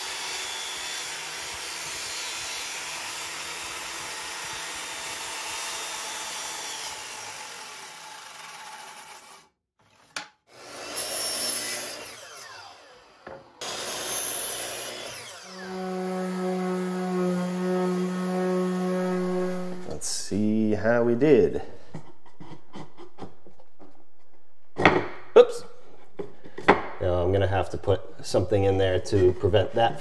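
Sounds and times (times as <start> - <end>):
miter saw cutting: 0.0 - 9.5, 10.5 - 20.0
circular saw cutting wood: 0.0 - 20.6.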